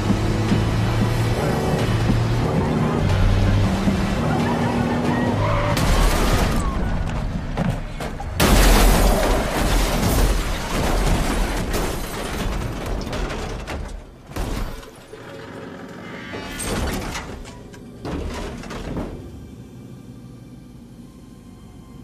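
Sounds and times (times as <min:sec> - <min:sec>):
truck crashing into car: 0:08.1 - 0:15.1.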